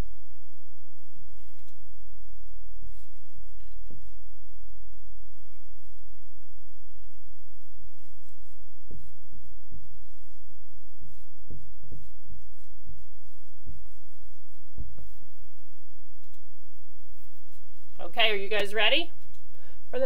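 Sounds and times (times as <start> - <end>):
steady low hum: 0.0 - 20.0
marker writing on a whiteboard: 5.8 - 16.3.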